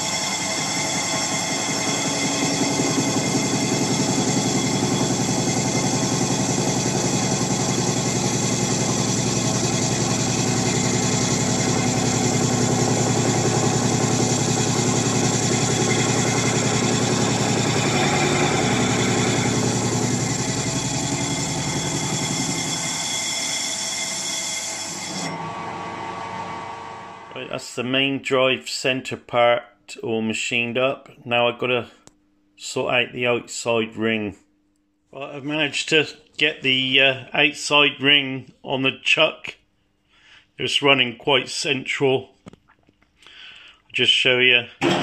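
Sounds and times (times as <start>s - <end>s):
metal lathe running: 0.0s - 27.4s.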